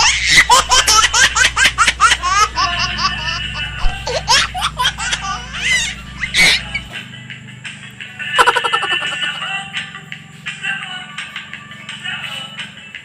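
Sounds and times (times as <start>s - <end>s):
high-pitched laughter: 0.0s - 6.8s, 8.4s - 9.3s
low hum: 0.0s - 9.2s.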